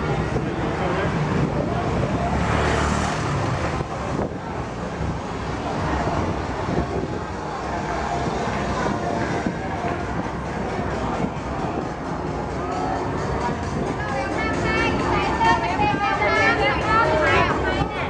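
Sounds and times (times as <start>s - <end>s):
street noise: 0.0s - 18.0s
motor scooter passing: 0.1s - 12.4s.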